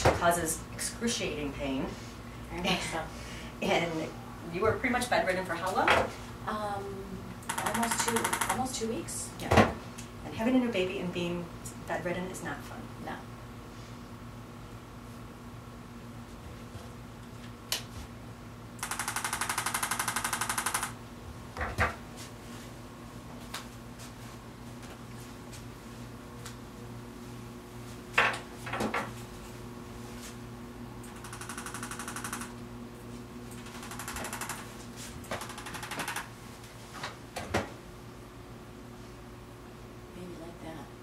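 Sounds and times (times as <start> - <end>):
sharp clicks: 7.4 - 8.6
rapid mechanical tapping: 7.4 - 8.7, 18.8 - 21.0, 31.1 - 32.5, 33.6 - 34.7, 35.3 - 36.3.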